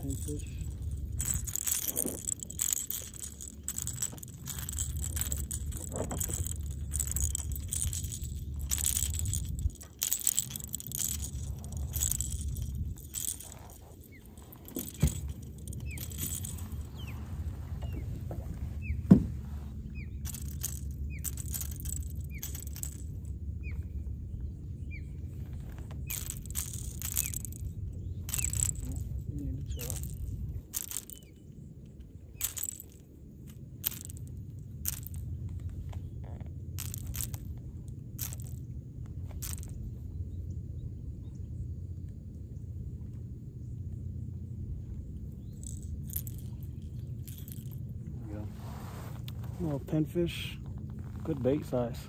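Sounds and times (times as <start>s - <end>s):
fishing reel clicking and rattling: 0.0s - 17.1s, 20.2s - 23.1s, 26.0s - 27.7s, 28.3s - 31.4s, 32.4s - 33.0s, 33.8s - 34.3s, 34.9s - 35.3s, 36.8s - 37.5s, 38.2s - 38.6s, 39.4s - 39.7s
low rumble: 0.0s - 52.0s.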